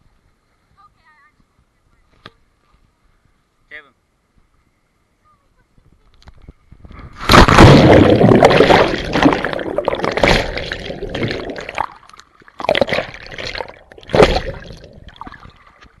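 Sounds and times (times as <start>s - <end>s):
water splashing and gurgling: 7.0s - 16.0s
underwater rush of bubbles: 7.1s - 15.8s.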